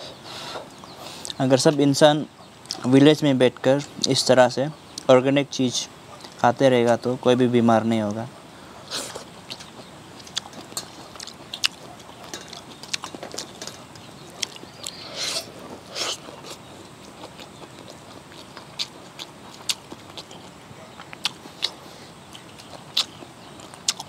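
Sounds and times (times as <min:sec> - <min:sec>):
people chewing: 0:00.0 - 0:01.4, 0:02.6 - 0:03.0, 0:06.1 - 0:07.1, 0:08.0 - 0:24.0.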